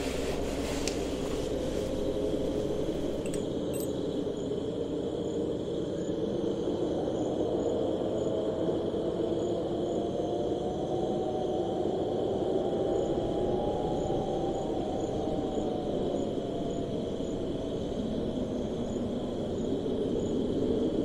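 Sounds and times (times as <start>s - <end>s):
faint high steady tone: 1.5s - 4.6s
light clinks: 2.6s - 4.0s.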